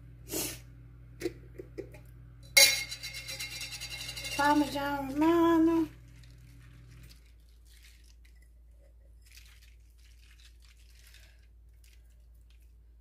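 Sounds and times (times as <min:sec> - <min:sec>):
low steady hum: 0:00.0 - 0:13.0
cheese shaken from a jar: 0:03.3 - 0:08.6, 0:09.2 - 0:13.0.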